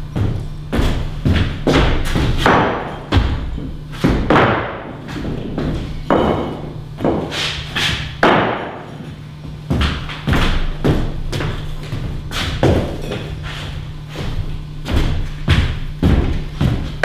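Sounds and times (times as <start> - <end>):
steady low hum: 0.0 - 17.0
heavy thuds and knocks: 0.1 - 13.3, 14.1 - 17.0.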